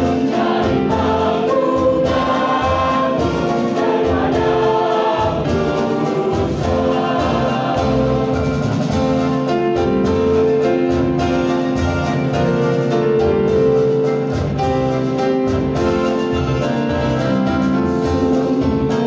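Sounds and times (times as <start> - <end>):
children's choir singing: 0.0 - 12.6, 17.9 - 19.0
electronic keyboards playing: 0.0 - 19.0.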